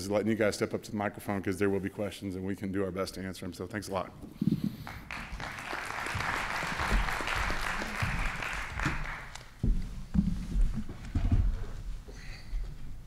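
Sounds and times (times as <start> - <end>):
audience applauding: 4.8 - 9.6.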